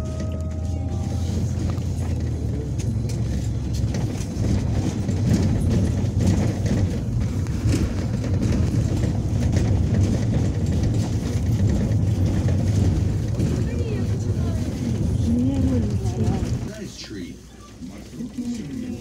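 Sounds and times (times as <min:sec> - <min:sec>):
bus engine and road rumble: 0:00.0 - 0:19.0
light rattles: 0:00.5 - 0:16.8.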